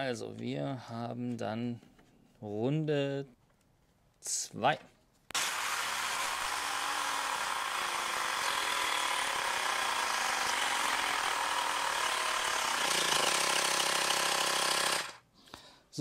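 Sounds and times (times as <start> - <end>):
portable air compressor running: 5.4 - 15.2.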